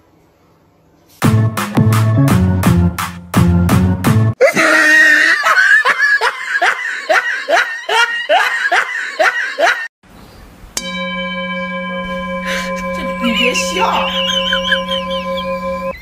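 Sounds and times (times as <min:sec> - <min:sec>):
person laughing hard: 0:04.4 - 0:09.9, 0:14.1 - 0:15.5
held music tones: 0:10.8 - 0:16.0.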